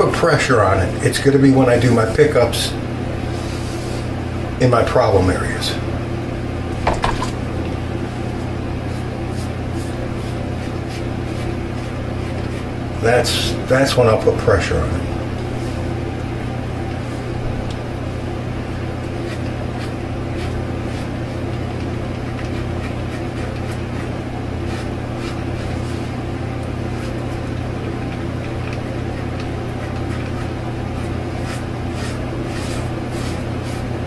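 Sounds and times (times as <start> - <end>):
electric fan humming: 0.0 - 34.0
razor scraping scalp: 22.2 - 26.2, 29.8 - 34.0.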